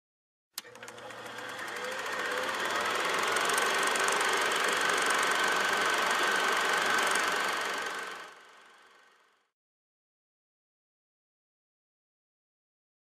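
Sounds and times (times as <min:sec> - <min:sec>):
mechanical rattle with high whine: 0:00.6 - 0:09.4.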